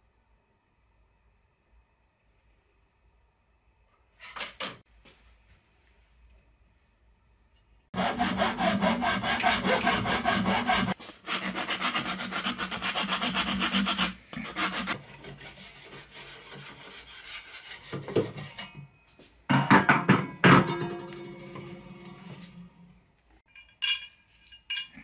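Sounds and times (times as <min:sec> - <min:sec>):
file rasping: 0:07.9 - 0:18.4
hacksaw cutting plastic pipe: 0:08.0 - 0:18.4.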